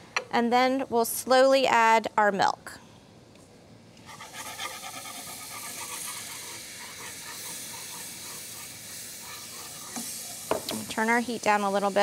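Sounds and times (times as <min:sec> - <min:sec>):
whisk stirring: 0:04.1 - 0:10.7
milk sizzling in hot roux: 0:04.1 - 0:12.0.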